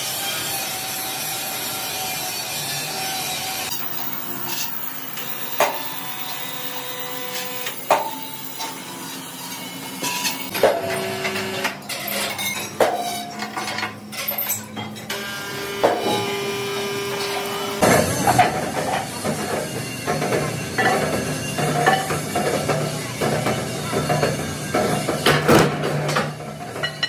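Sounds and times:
chains clinking: 3.7s - 10.6s
metal clangs: 3.7s - 10.8s.

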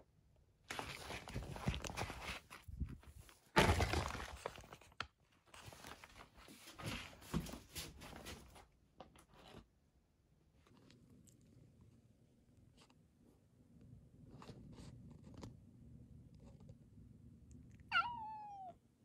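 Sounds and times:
rustling and scuffing: 0.7s - 4.5s, 5.6s - 8.7s.

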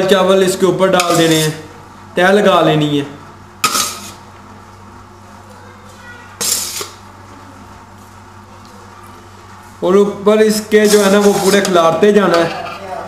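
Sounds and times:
metal ladle scraping a pot: 1.0s - 1.6s, 3.6s - 4.2s, 6.4s - 7.0s, 10.7s - 11.8s.

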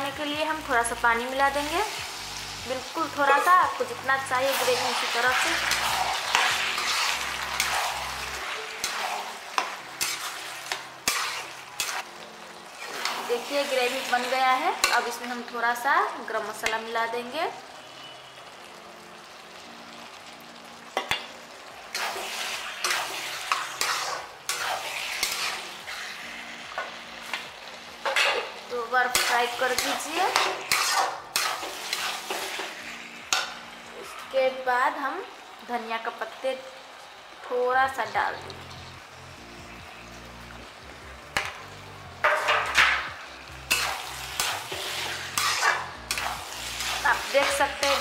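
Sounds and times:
curry sizzling softly: 0.0s - 48.0s
metal spatula scraping a pan: 3.1s - 12.1s, 12.7s - 15.3s, 21.9s - 34.5s, 42.2s - 43.1s, 43.7s - 48.0s.

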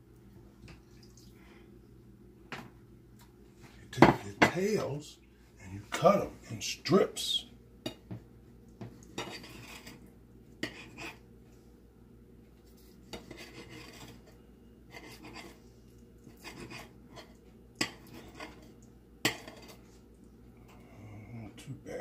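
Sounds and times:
knife scraping against a plate: 9.2s - 11.2s, 13.1s - 15.6s, 16.2s - 20.0s.

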